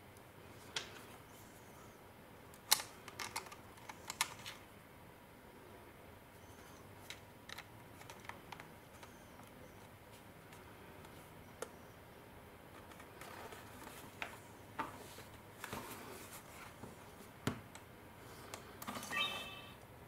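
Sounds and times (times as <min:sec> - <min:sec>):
short electronic chime: 0:19.1 - 0:19.8.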